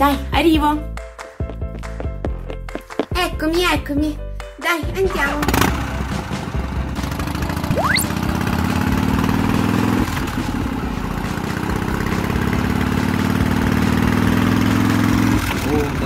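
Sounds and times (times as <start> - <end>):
motor scooter engine running: 5.4 - 16.0
quick rising whistle: 7.7 - 8.2.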